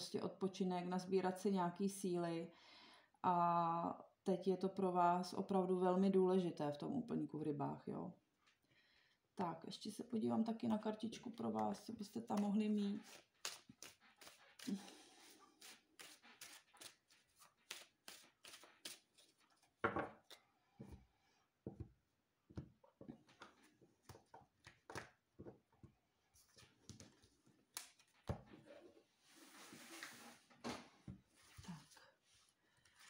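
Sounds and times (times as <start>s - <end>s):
cards being shuffled: 12.4s - 14.8s, 15.6s - 19.7s, 26.4s - 28.5s
cards rustling: 15.6s - 19.8s.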